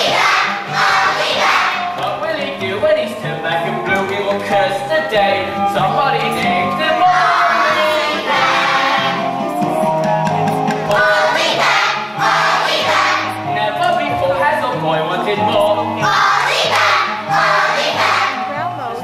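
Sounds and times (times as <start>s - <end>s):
children's chorus singing: 0.0s - 2.0s, 7.0s - 9.4s, 10.9s - 13.4s, 16.0s - 18.4s
musical accompaniment: 0.0s - 19.0s.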